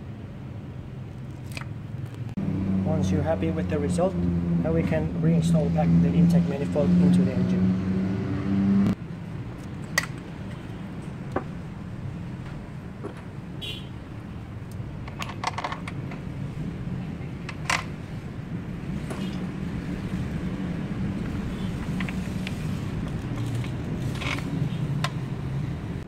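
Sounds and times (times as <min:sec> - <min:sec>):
tools and parts clicking: 0:14.7 - 0:16.2.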